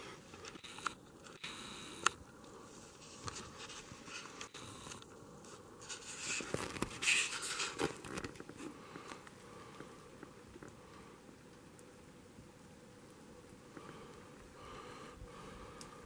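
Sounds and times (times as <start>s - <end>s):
footsteps crunching crusty snow: 5.5s - 9.2s.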